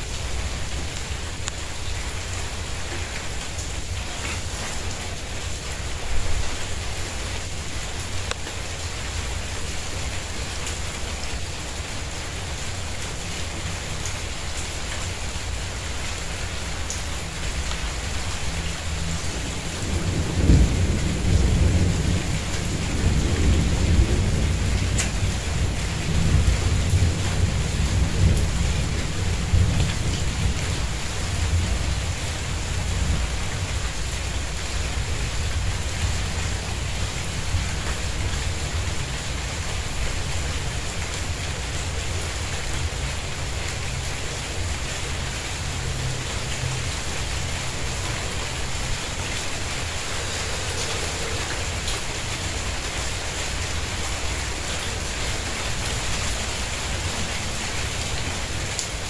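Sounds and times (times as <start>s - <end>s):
rain on tiles: 0.0s - 59.0s
low rumble of thunder: 19.0s - 40.9s.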